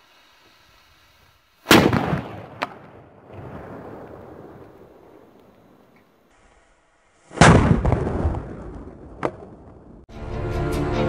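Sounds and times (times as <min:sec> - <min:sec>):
firecracker bang: 0:01.6 - 0:05.3, 0:07.3 - 0:10.0
sharp crack: 0:01.6 - 0:06.2, 0:07.3 - 0:10.0.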